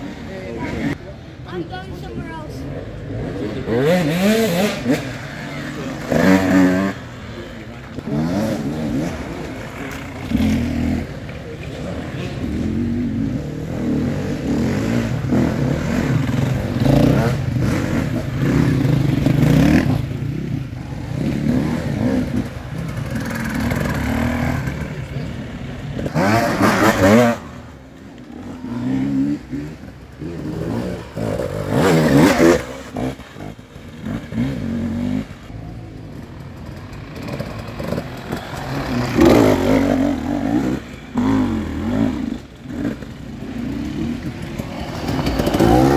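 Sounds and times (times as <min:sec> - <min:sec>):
dirt bike engines revving: 0:00.0 - 0:45.9.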